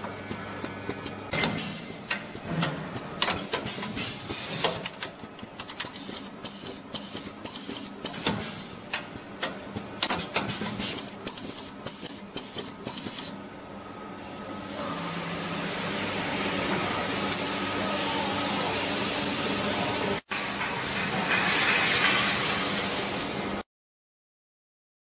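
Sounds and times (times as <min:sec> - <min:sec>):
machine clattering and clicking: 0:00.6 - 0:13.4.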